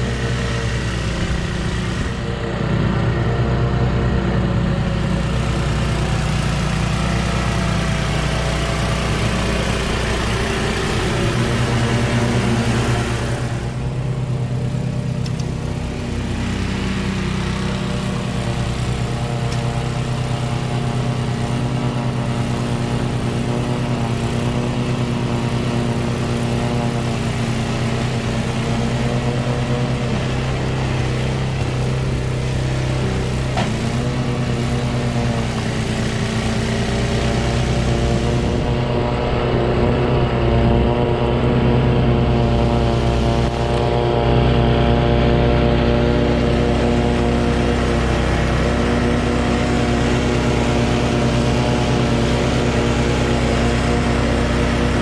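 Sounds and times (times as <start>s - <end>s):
snowblower engine drone: 0.0s - 55.0s.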